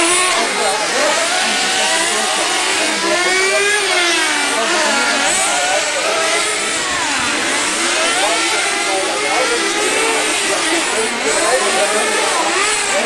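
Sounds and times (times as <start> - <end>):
rc car engines whining: 0.0 - 13.0.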